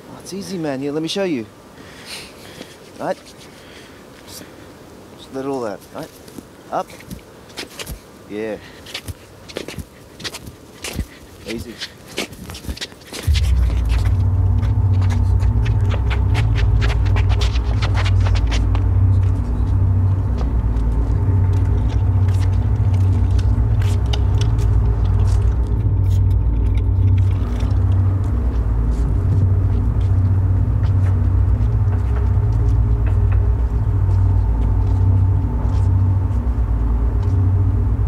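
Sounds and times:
steady hum of higher tones: 13.2 - 38.0
deep pulsing bass rumble: 13.3 - 38.0.

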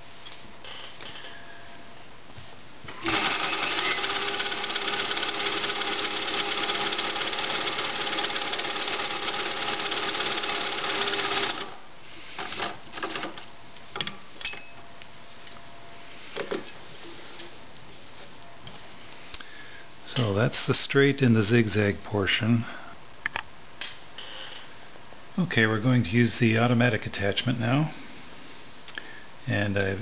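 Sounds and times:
sewing machine stitching: 2.9 - 11.8, 12.4 - 13.4.

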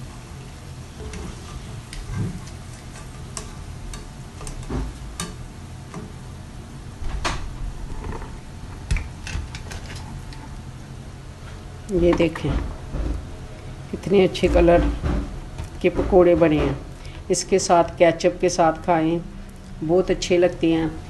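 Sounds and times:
wire skimmer scraping a pan: 0.9 - 5.4.

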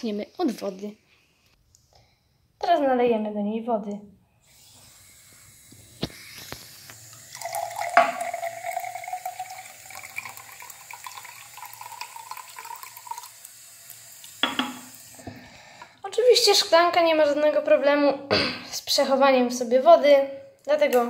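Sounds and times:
tap water filling a glass: 6.0 - 13.5, 14.2 - 15.3.

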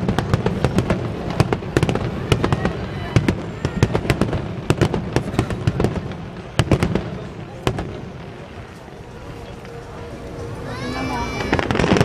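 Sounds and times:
fireworks bangs and crackling pops: 0.0 - 9.9, 11.4 - 12.0.

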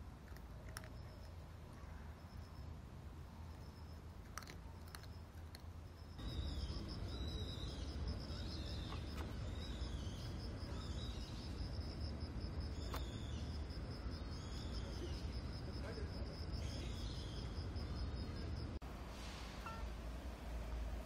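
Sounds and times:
low background hum: 0.0 - 21.0
insects trilling: 3.4 - 18.8.

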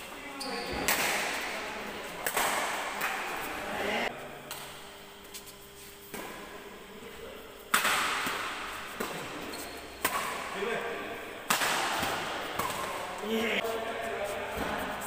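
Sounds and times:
badminton racket hitting shuttlecock: 7.7 - 10.6, 11.4 - 13.0.

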